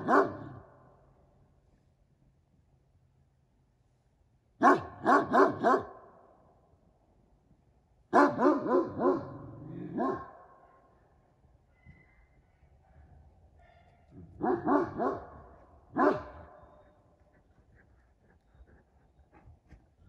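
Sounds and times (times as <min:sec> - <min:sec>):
dog barking: 0:00.0 - 0:00.7, 0:04.6 - 0:06.1, 0:08.1 - 0:11.0, 0:12.9 - 0:16.9.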